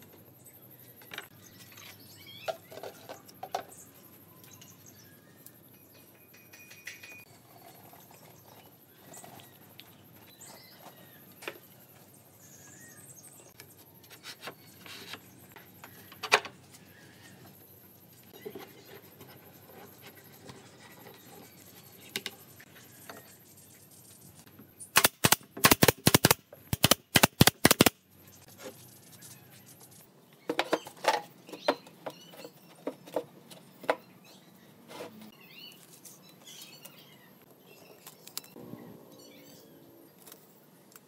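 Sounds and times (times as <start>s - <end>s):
loud sharp cracks: 25.0s - 28.0s.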